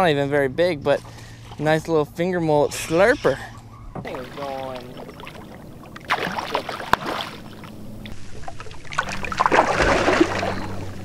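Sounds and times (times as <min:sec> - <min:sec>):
fish splashing in water: 0:04.0 - 0:11.0.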